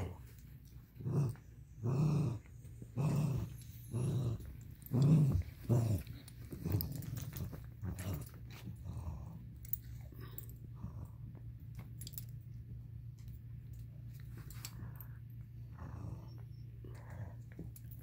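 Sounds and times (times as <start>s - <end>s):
small dog growling: 1.0s - 11.3s, 14.7s - 17.7s.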